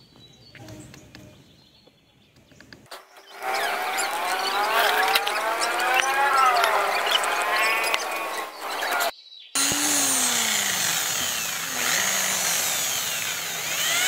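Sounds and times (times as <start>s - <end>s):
electric drill boring into wood: 3.2s - 14.0s.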